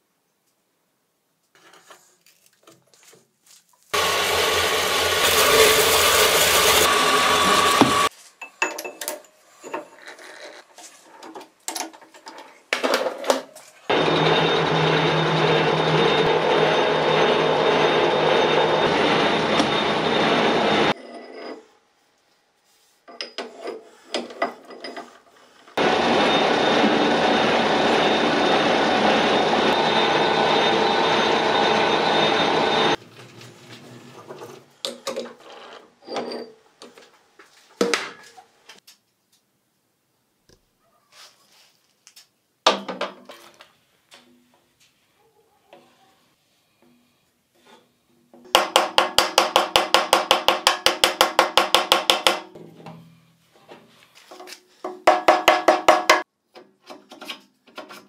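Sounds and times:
power tool running: 0:04.0 - 0:08.1, 0:13.9 - 0:21.0, 0:25.8 - 0:33.0.

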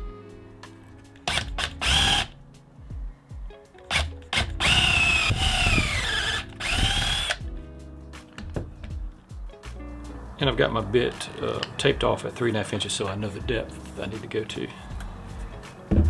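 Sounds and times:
cordless drill boring into wood: 0:01.2 - 0:02.3, 0:03.9 - 0:07.4.

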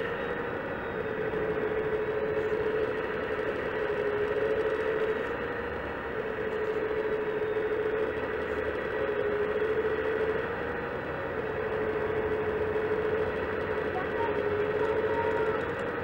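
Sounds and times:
hydraulic pump whine: 0:00.0 - 0:16.0.

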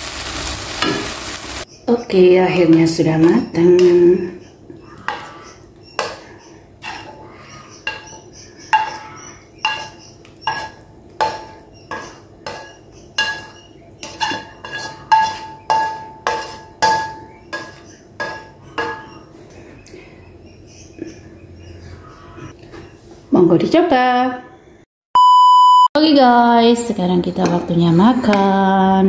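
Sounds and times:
metal spatula scraping wok: 0:05.0 - 0:19.3.

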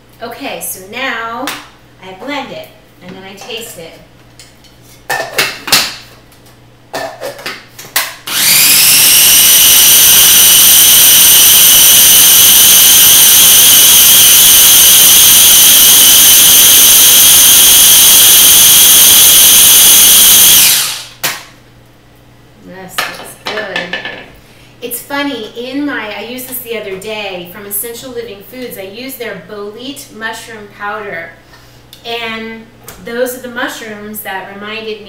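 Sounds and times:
food processor motor whine: 0:08.3 - 0:21.1.

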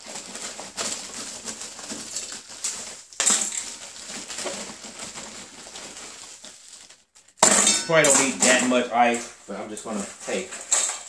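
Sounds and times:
ice cubes clattering into container: 0:00.0 - 0:06.5.

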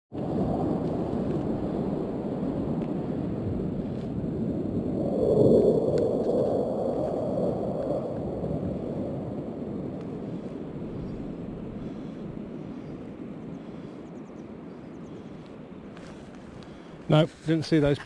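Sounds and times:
aeroplanes rumbling overhead: 0:00.3 - 0:17.0.

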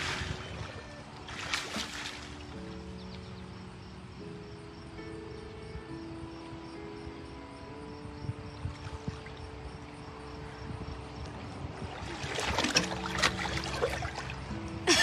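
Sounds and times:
pool water splashing: 0:00.0 - 0:02.6, 0:11.8 - 0:15.0
soft music with held notes: 0:00.0 - 0:15.0.

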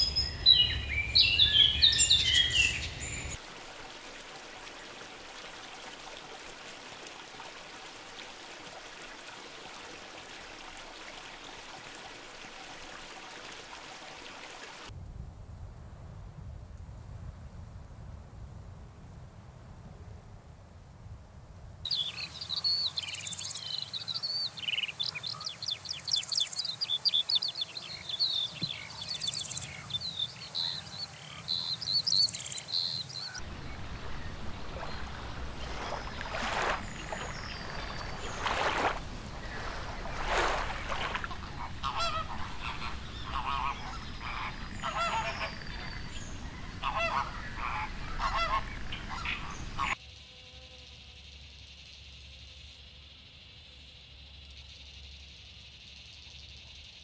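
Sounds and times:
lower bird calls: 0:21.9 - 0:50.0.

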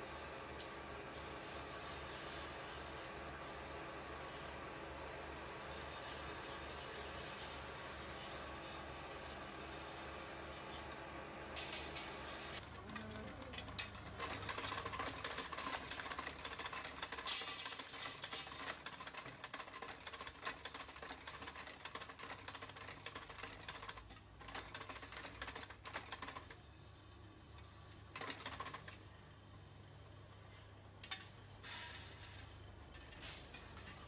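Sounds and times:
motor hum: 0:12.6 - 0:16.1.

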